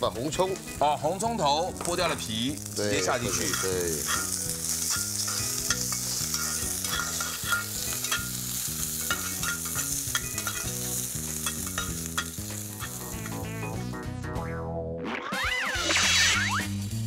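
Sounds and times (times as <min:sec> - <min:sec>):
food sizzling in fat: 0:00.0 - 0:13.9
metal ladle scraping a pot: 0:03.3 - 0:10.7.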